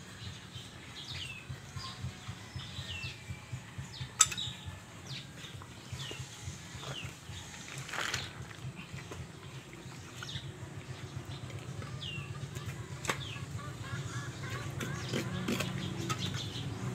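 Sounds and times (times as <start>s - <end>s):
small birds chirping: 0.0s - 16.9s
steady low hum: 0.0s - 16.9s.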